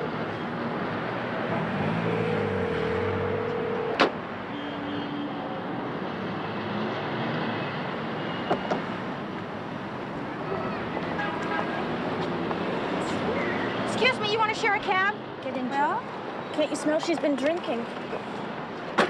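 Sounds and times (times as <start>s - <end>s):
passing cars: 0.0s - 19.0s
steady tone: 1.5s - 4.0s
payphone handset hung up: 3.2s - 4.2s.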